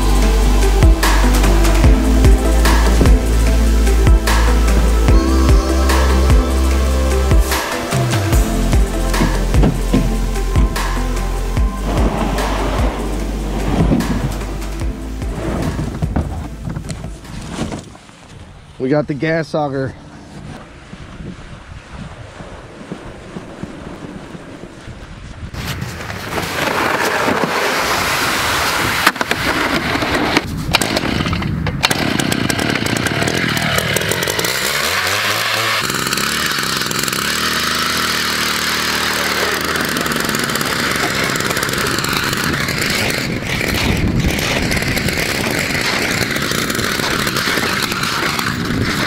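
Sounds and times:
ice auger engine drilling: 0.0s - 17.3s, 26.3s - 49.0s.

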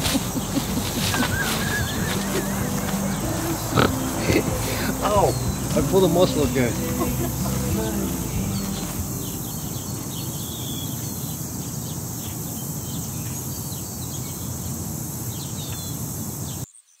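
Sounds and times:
low rumble: 0.0s - 10.9s
high insect drone: 0.0s - 16.6s
bird chirps: 0.1s - 14.5s.

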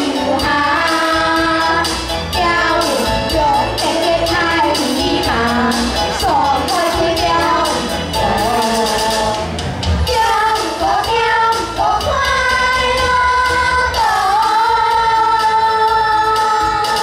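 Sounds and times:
backing music with a beat: 0.0s - 17.0s
children singing in unison: 10.1s - 17.0s.

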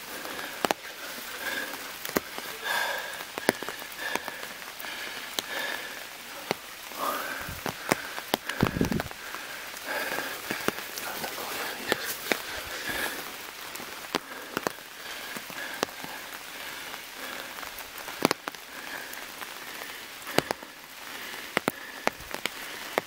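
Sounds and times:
footsteps on stone and dry leaves: 0.0s - 17.4s
steady hiss: 0.0s - 23.0s.

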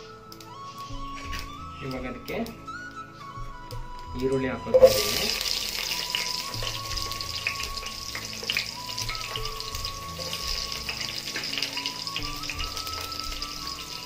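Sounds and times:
small crackles and pops: 0.0s - 14.0s
soft background melody: 0.0s - 14.0s
onions sizzling in hot oil: 4.7s - 14.0s.

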